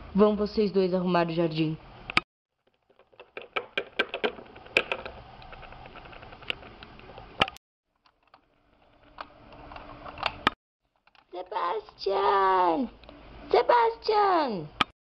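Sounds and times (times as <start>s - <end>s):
plastic toy clicks and taps: 2.9s - 5.6s.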